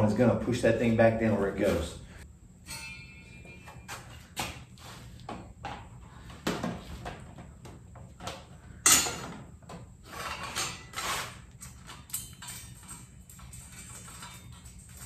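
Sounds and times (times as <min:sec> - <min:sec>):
scraping and rattling: 0:10.0 - 0:15.0.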